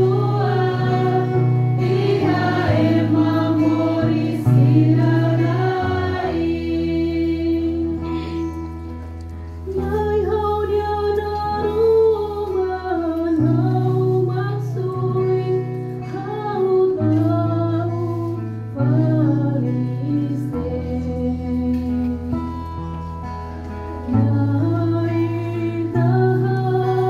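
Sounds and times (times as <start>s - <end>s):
woman singing a psalm: 0.0s - 8.4s, 9.7s - 22.4s, 24.1s - 27.0s
instrumental accompaniment: 0.0s - 19.3s.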